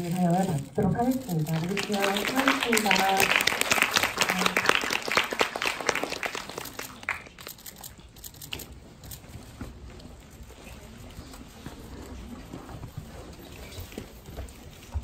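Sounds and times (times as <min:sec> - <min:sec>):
clothes and chairs rustling: 0:00.0 - 0:15.0
audience applause: 0:01.6 - 0:07.6.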